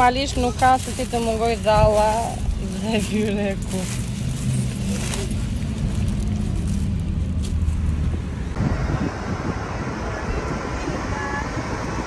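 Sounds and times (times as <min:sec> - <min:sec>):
paper bag rustling: 0:00.0 - 0:08.0
car road and engine rumble: 0:00.0 - 0:12.0
rushing road and wind noise: 0:00.0 - 0:12.0.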